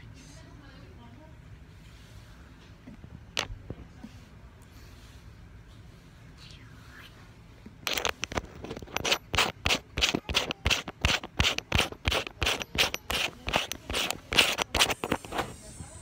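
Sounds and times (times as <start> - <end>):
fingers scratching on microphone: 7.8 - 15.6.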